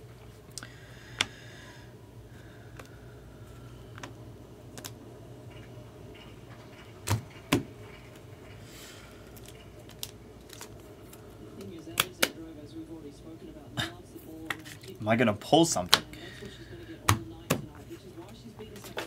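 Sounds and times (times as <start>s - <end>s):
low steady hum: 0.0s - 19.0s
trading cards clicking and tapping: 0.6s - 1.4s, 2.7s - 8.3s, 9.2s - 12.4s.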